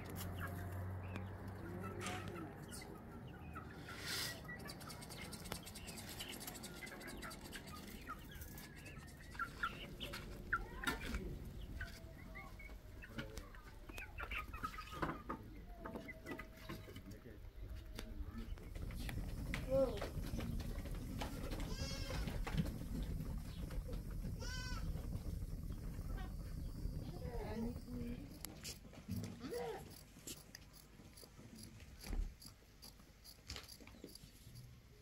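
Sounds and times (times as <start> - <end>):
chickens clucking: 0.0 - 32.2.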